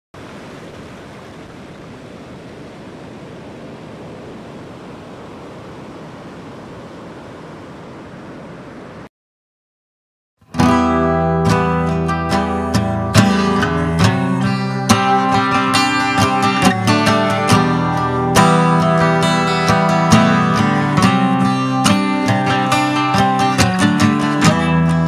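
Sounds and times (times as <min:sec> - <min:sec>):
ocean surf rushing: 0:00.2 - 0:09.1
fingerpicked acoustic guitar: 0:10.4 - 0:25.0.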